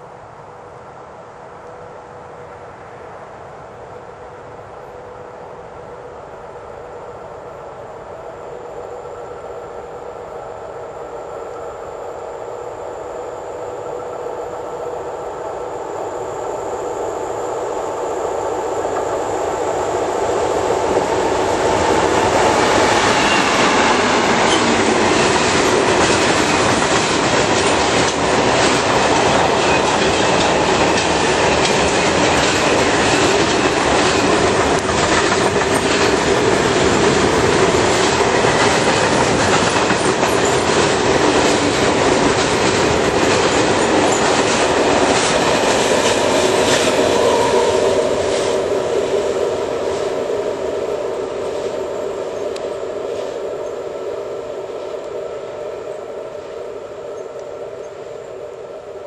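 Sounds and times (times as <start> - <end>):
diesel locomotive passing: 0.0 - 59.0
wagon wheels rumbling on rails: 20.8 - 50.3.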